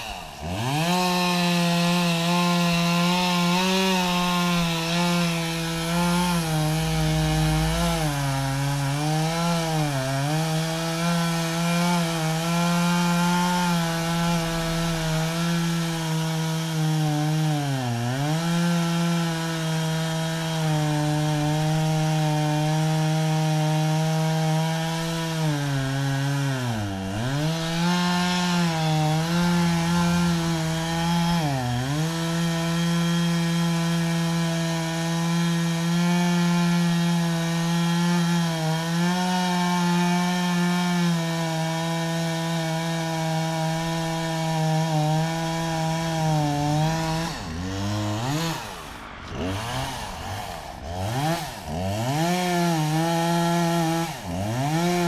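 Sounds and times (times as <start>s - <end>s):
chainsaw cutting into tree trunk: 0.0s - 55.0s.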